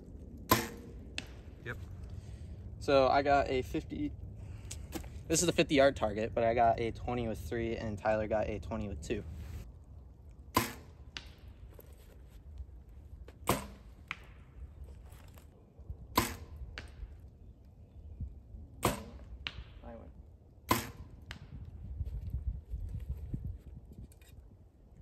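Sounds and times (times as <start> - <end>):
arrow striking target: 0.4 - 1.6, 10.5 - 11.5, 13.3 - 14.5, 16.1 - 17.1, 18.8 - 20.0, 20.6 - 21.6.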